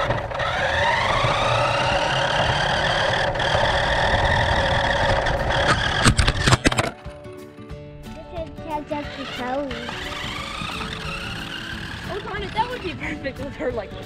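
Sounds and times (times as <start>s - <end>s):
toy car motor whining: 0.0s - 6.9s, 8.8s - 13.4s
sharp clicks: 9.6s - 12.8s.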